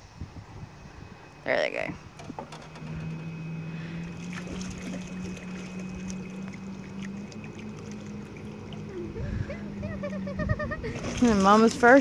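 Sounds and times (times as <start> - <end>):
distant jet ski engine humming: 0.5 - 12.0
water lapping: 3.7 - 12.0.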